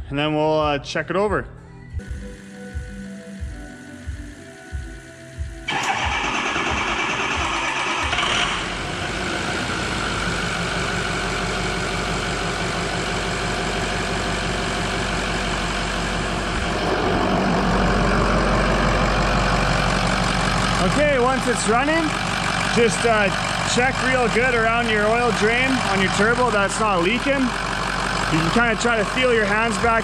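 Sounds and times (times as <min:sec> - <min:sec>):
diesel engine starting and idling: 0:02.1 - 0:30.0.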